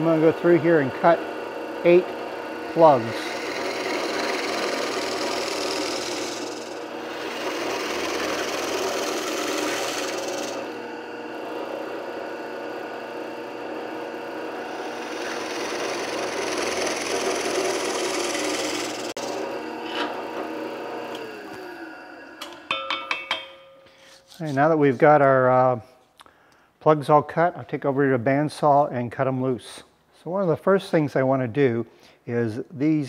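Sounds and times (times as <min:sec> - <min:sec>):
cutter grinding into wood: 0:00.0 - 0:22.6
drill press motor hum: 0:00.0 - 0:22.8.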